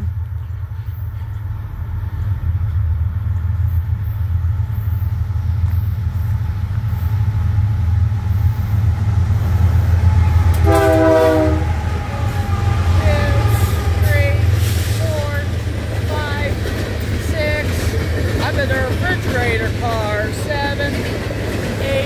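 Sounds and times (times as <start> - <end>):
diesel locomotive engine rumble: 0.0 - 22.0
train air horn blast: 10.0 - 15.5.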